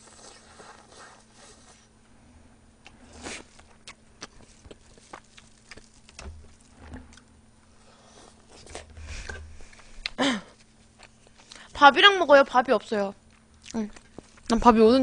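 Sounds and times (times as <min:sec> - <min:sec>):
quiet chewing: 0:02.8 - 0:11.7, 0:13.2 - 0:14.6.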